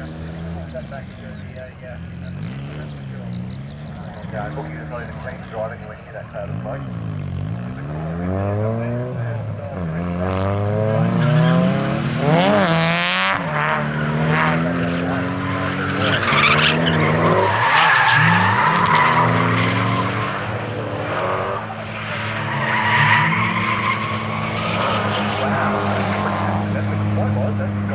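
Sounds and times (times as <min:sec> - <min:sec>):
car engine revving: 0:00.0 - 0:27.9
tyres squealing and skidding: 0:11.0 - 0:12.2, 0:13.8 - 0:27.0.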